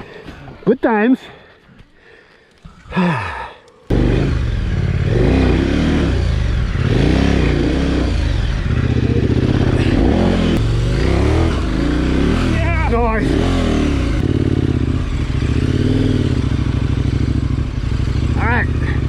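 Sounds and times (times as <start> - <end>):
motorcycle engine revving: 3.9 - 19.0.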